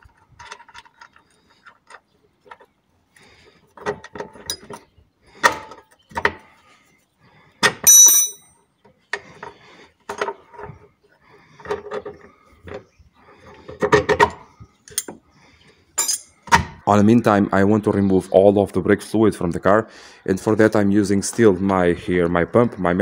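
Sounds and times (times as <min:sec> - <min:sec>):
spanner clinking on metal bolt: 0:03.9 - 0:04.8, 0:07.6 - 0:08.5, 0:16.0 - 0:16.4.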